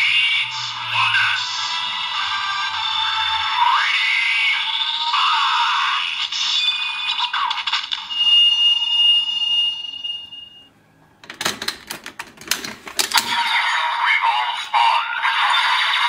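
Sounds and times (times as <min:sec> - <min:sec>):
high beep tone: 0:08.1 - 0:10.7.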